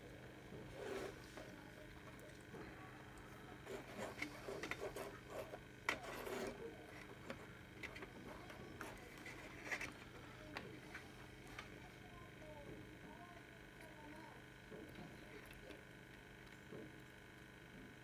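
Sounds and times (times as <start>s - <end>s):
fingers handling wires: 3.6s - 11.8s.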